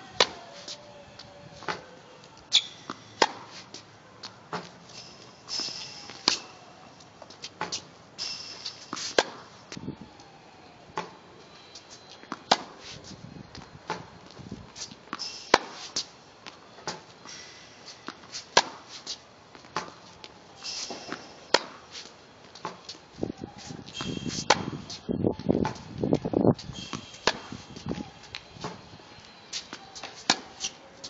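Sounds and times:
shoe squeaks: 0.4 - 3.9, 4.9 - 9.4, 11.4 - 25.9, 26.5 - 31.0
tennis racket hitting ball: 2.5 - 3.8, 5.5 - 6.6, 8.5 - 9.5, 15.1 - 17.1, 17.8 - 20.0, 20.8 - 23.0, 23.6 - 24.9, 26.7 - 27.8, 29.6 - 30.8.

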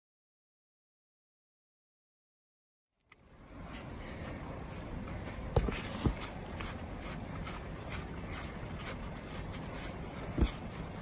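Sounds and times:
low steady rumble: 3.1 - 11.0.

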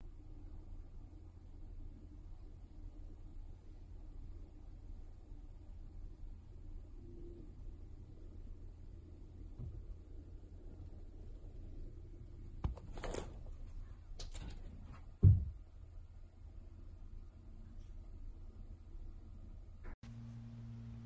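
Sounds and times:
low steady hum: 0.0 - 21.0
loud thump: 15.2 - 15.6.

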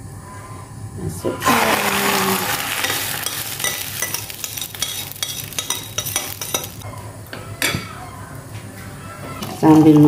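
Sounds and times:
egg batter sizzling in a pan: 1.4 - 6.8.

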